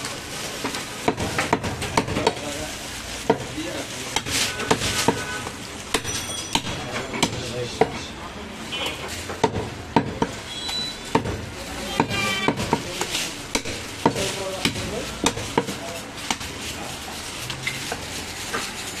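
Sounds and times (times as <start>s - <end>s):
market background: 0.0s - 19.0s
cleaver chopping meat on wood: 1.0s - 2.4s, 4.2s - 5.3s, 5.9s - 8.0s, 9.3s - 10.4s, 11.1s - 16.5s.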